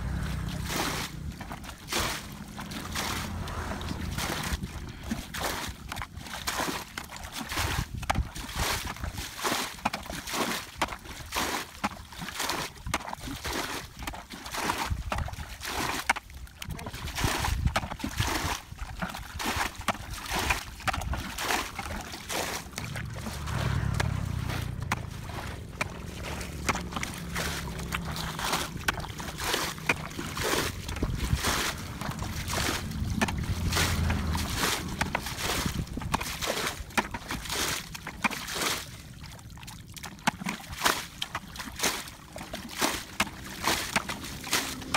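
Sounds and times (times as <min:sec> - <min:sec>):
low steady rumble: 0:00.0 - 0:06.4, 0:20.1 - 0:40.1
splashing in shallow muddy water: 0:00.0 - 0:44.9.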